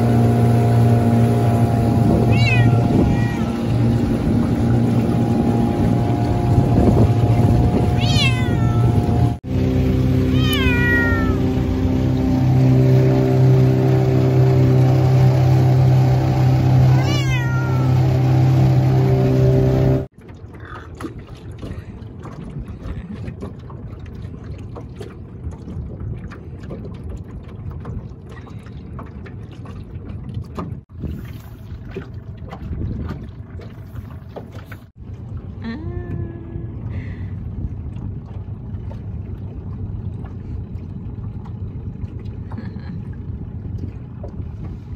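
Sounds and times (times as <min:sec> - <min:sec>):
boat motor droning: 0:00.0 - 0:44.9
wind and water rushing: 0:00.0 - 0:44.9
cat meowing: 0:02.3 - 0:03.5, 0:08.0 - 0:09.0, 0:10.3 - 0:11.4, 0:16.9 - 0:18.0.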